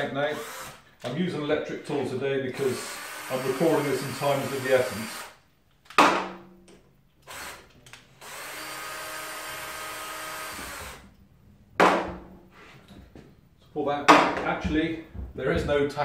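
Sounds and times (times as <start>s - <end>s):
cordless drill-driver running: 0.3s - 0.9s, 2.5s - 5.4s, 7.2s - 7.6s, 8.2s - 11.0s.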